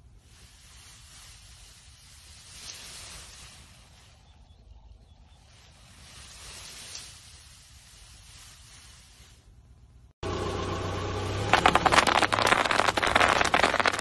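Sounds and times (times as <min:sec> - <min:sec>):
foam squeezing with soft hiss: 0:00.0 - 0:04.3, 0:05.6 - 0:09.6.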